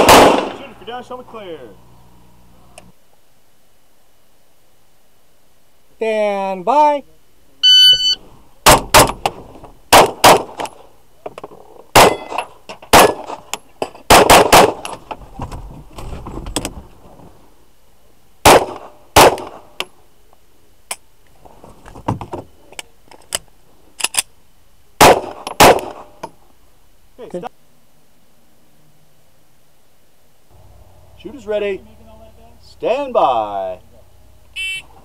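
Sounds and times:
pistol shots: 0.0s - 0.8s, 8.6s - 10.7s, 12.0s - 13.4s, 14.1s - 14.9s, 18.4s - 19.6s, 25.0s - 26.1s.

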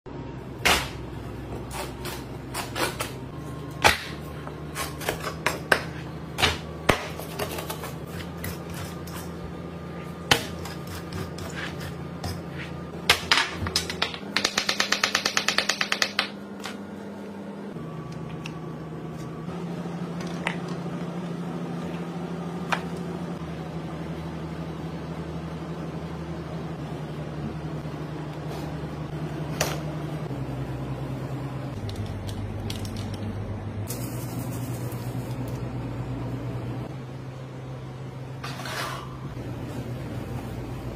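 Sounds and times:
steady low hum: 16.3s - 40.9s.

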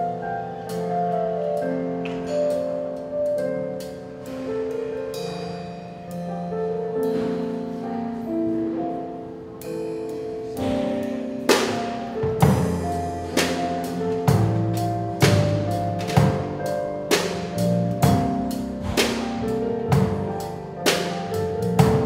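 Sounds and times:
keyboard chords: 0.0s - 22.0s
loud percussive hits: 10.6s - 20.3s.

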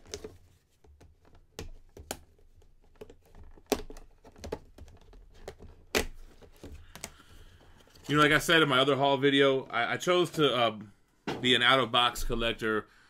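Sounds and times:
plastic and cardboard crinkling: 0.0s - 8.6s.

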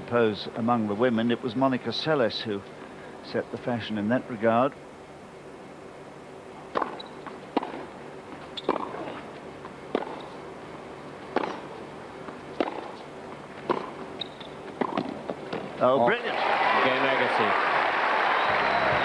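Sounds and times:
tennis ball hit by rackets: 6.7s - 7.9s, 8.6s - 9.2s, 9.9s - 10.3s, 11.3s - 11.7s, 12.6s - 13.0s, 13.6s - 15.7s
faint arena hush: 15.7s - 19.0s.

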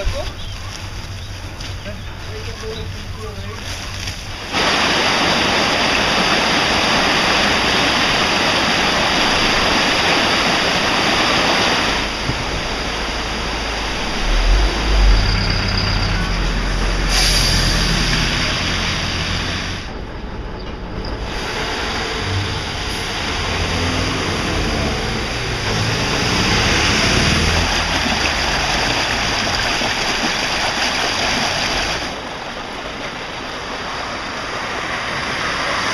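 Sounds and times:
river rushing: 0.0s - 20.0s, 21.2s - 35.9s
low rumble: 12.1s - 19.4s.

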